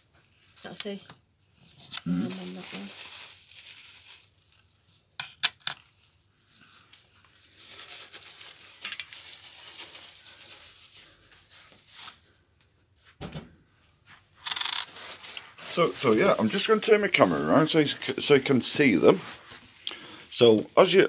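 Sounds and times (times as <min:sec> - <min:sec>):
coins scraping: 0:14.4 - 0:15.1.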